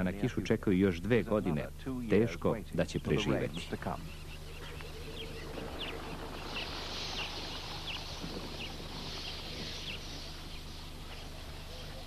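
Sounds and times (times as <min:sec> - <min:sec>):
steady hiss: 0:00.0 - 0:12.0
low hum: 0:01.1 - 0:12.0
bird chirping: 0:03.0 - 0:12.0.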